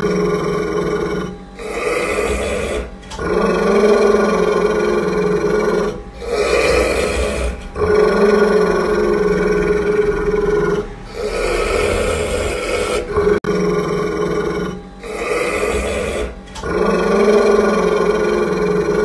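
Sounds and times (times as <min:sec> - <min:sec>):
dog growling: 0:00.0 - 0:19.0.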